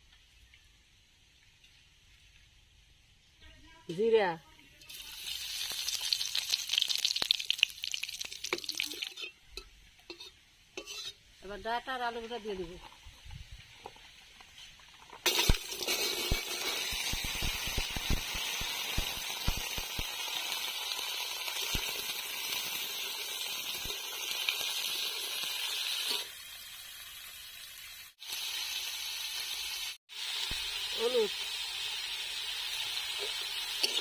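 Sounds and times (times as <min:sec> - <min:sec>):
vegetables sizzling in oil: 0:00.0 - 0:34.0
metal spatula scraping wok: 0:08.5 - 0:11.4, 0:13.9 - 0:17.8, 0:33.2 - 0:34.0.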